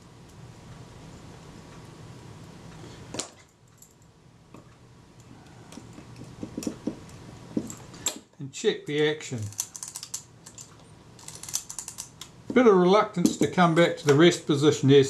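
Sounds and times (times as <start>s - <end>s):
screwdriver clicking on metal: 9.5s - 12.3s.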